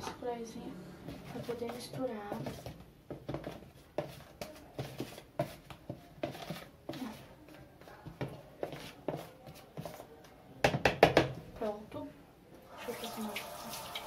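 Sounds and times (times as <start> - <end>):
plastic spoon scraping flour: 3.4 - 7.4.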